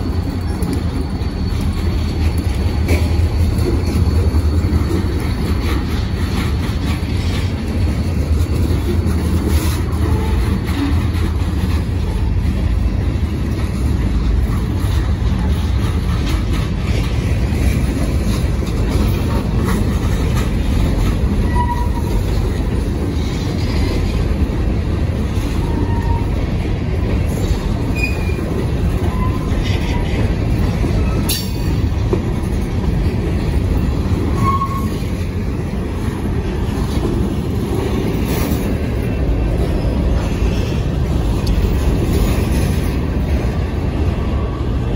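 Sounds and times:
train wheels rumbling and clattering: 0:00.0 - 0:44.9
wheel squeals: 0:21.3 - 0:22.3, 0:25.4 - 0:26.4, 0:27.9 - 0:31.6, 0:34.2 - 0:35.2.

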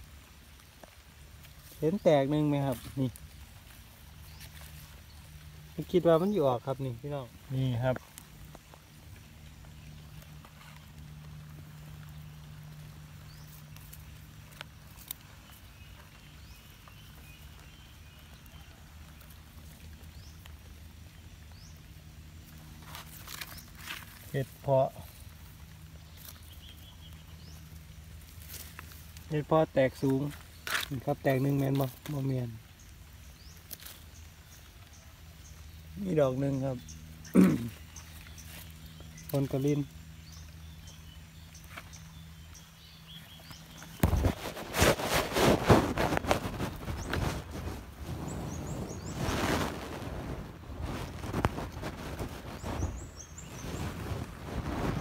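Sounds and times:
steady low hum: 0:00.0 - 0:31.3
fingers rustling soil and grass: 0:00.0 - 0:55.0
microphone handling rustle: 0:36.8 - 0:55.0.

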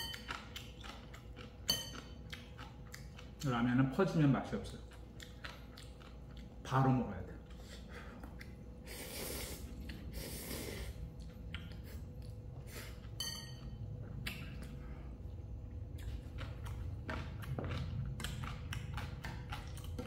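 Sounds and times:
person slurping and chewing noodles: 0:00.0 - 0:03.4, 0:07.4 - 0:13.3, 0:14.1 - 0:20.0.

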